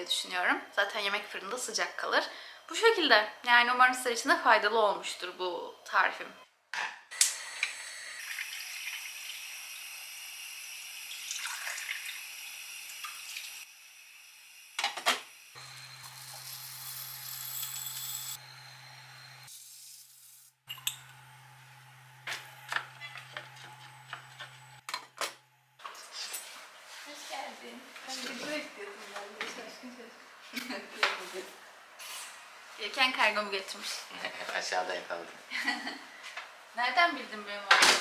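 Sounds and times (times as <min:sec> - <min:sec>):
water running into sink: 0:08.2 - 0:09.9, 0:10.9 - 0:13.6.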